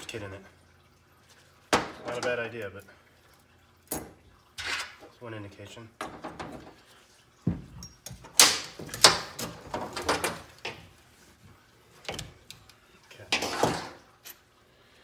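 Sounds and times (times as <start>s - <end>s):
metal parts clanking and scraping: 13.3s - 14.4s.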